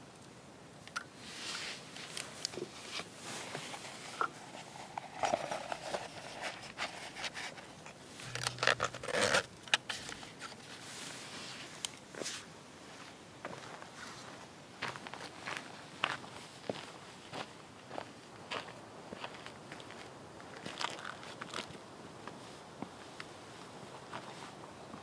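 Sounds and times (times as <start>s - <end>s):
metal pot clicking and scraping: 4.2s - 10.0s.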